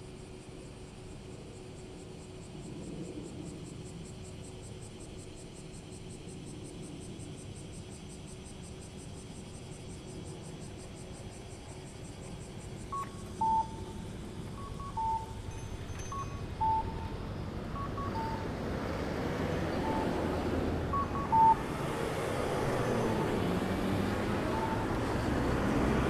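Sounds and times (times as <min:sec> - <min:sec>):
road traffic noise: 0:09.4 - 0:26.0
pedestrian crossing signal: 0:12.7 - 0:26.0.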